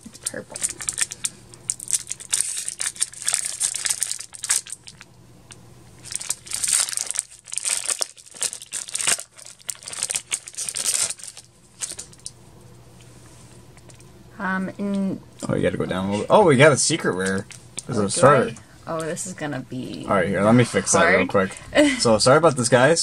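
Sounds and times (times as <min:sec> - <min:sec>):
foil wrapper crinkling and tearing: 0:00.0 - 0:05.1, 0:06.0 - 0:12.3.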